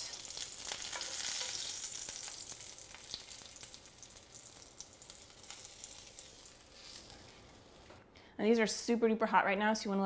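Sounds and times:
fish sizzling in hot oil: 0.0s - 7.8s.

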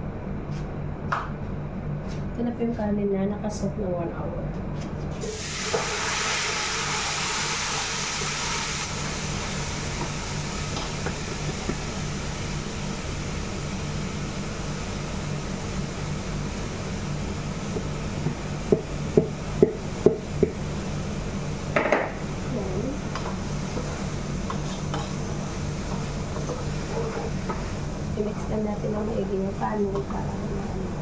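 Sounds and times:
rice sizzling in hot oil: 5.2s - 28.3s.

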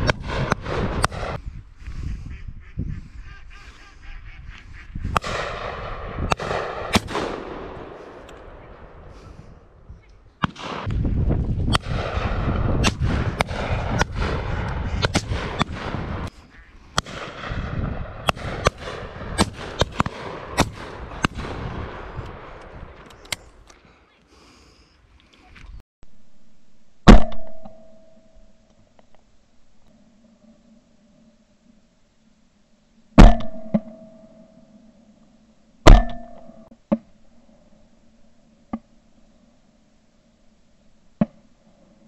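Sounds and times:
shotgun shots: 0.0s - 1.4s, 5.1s - 9.4s, 10.4s - 16.3s, 16.9s - 23.0s
heavy low rumble: 0.0s - 23.7s
ducks calling: 1.8s - 5.2s, 16.3s - 17.0s.

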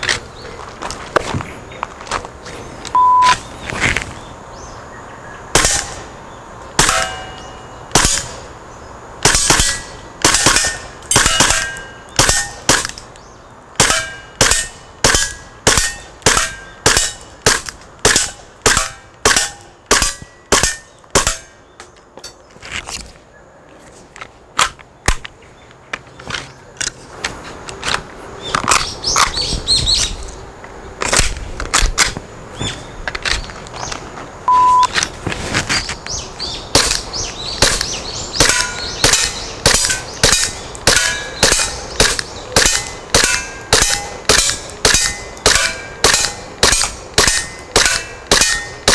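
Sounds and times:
airsoft pistol shots: 5.5s - 6.0s, 6.8s - 7.3s, 7.9s - 8.4s, 9.2s - 13.0s.

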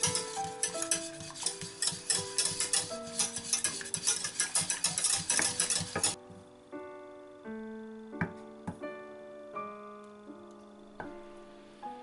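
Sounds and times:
whisk scraping a saucepan: 0.0s - 6.2s
background music with held notes: 0.0s - 12.0s.

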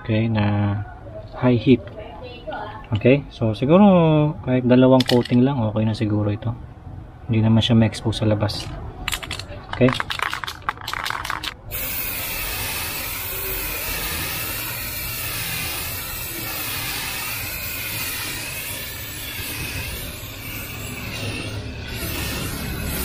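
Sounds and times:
aerosol spray can hissing: 11.7s - 20.7s.

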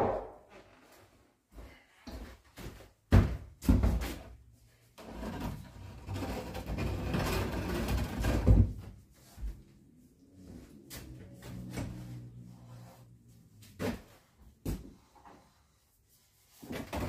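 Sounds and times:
wooden board scraping: 5.0s - 8.8s.

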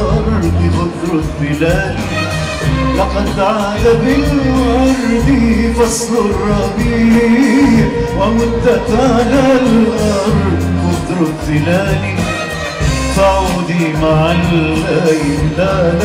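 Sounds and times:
orchestral music with strings: 0.0s - 16.0s.

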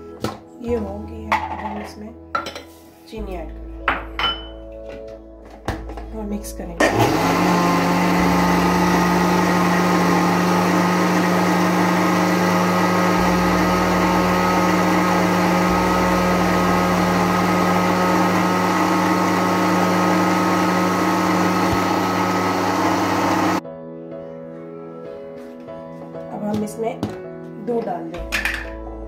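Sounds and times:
blender motor humming: 6.8s - 23.6s.

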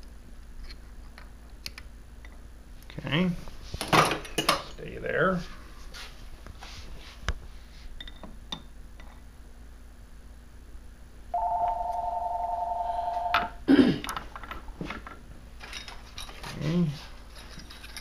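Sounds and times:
electronic two-tone warble: 11.4s - 13.5s.

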